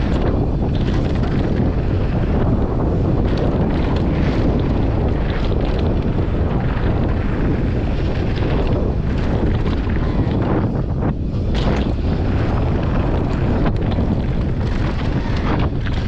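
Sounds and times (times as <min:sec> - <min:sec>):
bike rattling: 0:00.0 - 0:16.0
stones crackling: 0:00.0 - 0:16.0
tyres rumbling over gravel: 0:00.0 - 0:16.0
wind buffeting microphone: 0:00.0 - 0:16.0.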